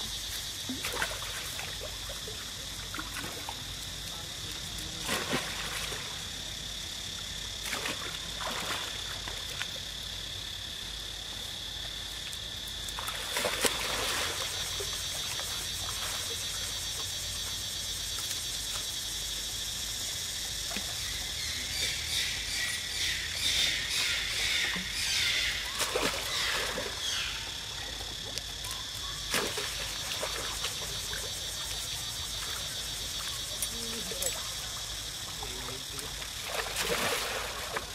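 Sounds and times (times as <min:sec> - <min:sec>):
high insect drone: 0:00.0 - 0:37.9
water splashing: 0:00.6 - 0:03.8, 0:04.4 - 0:06.3, 0:07.6 - 0:09.8, 0:12.9 - 0:17.2, 0:25.6 - 0:27.1, 0:27.9 - 0:37.9.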